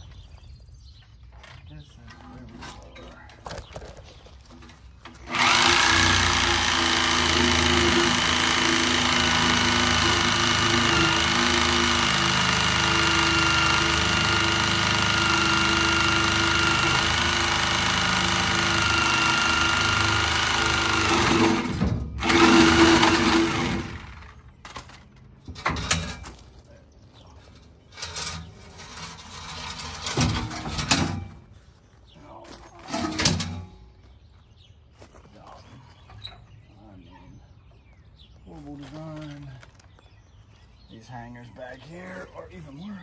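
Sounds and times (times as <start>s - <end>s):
reciprocating saw cutting metal pipe: 5.3s - 24.2s.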